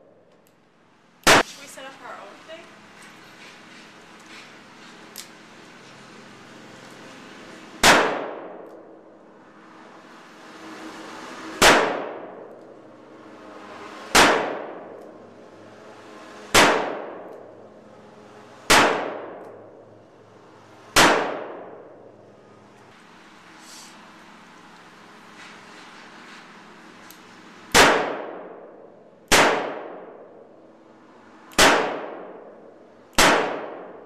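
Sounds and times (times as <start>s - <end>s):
revolver gunshots with echo: 1.2s - 1.5s, 7.8s - 8.7s, 11.6s - 12.4s, 14.1s - 15.0s, 16.5s - 17.3s, 18.7s - 19.6s, 21.0s - 21.9s, 27.7s - 30.3s, 31.5s - 34.0s.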